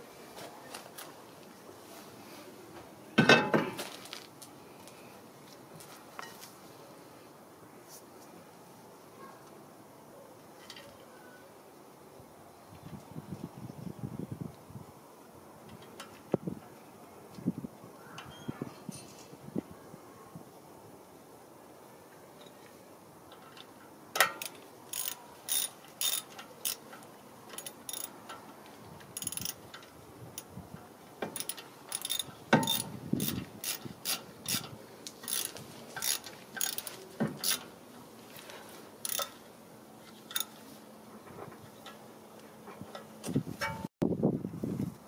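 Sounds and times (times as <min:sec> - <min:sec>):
ratchet wrench clicking: 0:24.2 - 0:26.9, 0:27.5 - 0:28.2, 0:29.2 - 0:30.5, 0:31.3 - 0:37.7, 0:39.0 - 0:39.4, 0:40.3 - 0:40.5
dull knocks against metal rotor: 0:32.5 - 0:33.4.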